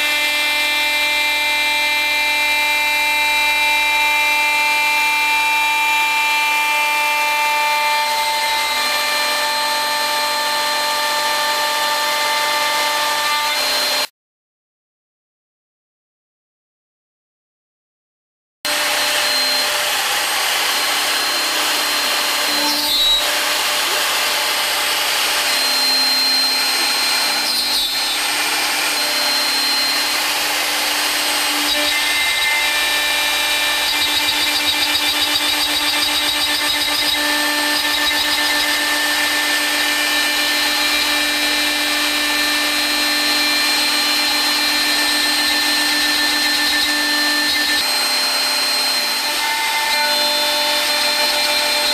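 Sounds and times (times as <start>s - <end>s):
router spindle milling panel: 0.0s - 14.1s, 18.7s - 51.9s.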